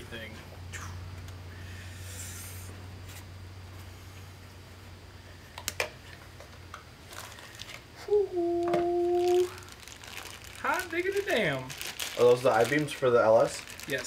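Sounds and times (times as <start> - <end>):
packaging rustling and crinkling: 7.0 - 7.9, 8.5 - 14.0
man humming: 8.0 - 9.6.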